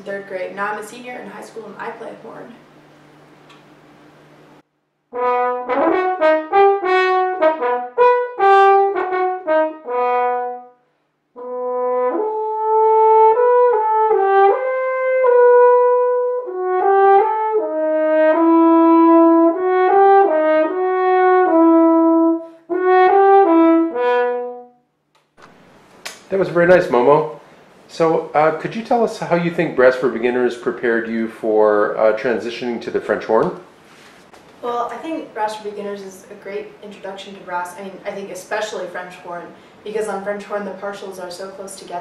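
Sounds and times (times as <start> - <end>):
french horn melody: 5.1 - 24.9.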